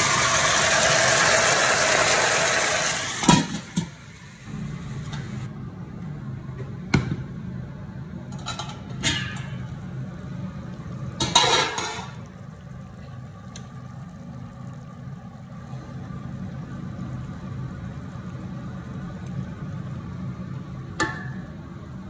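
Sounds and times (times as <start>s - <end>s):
pot lid clattering: 11.2s - 12.2s.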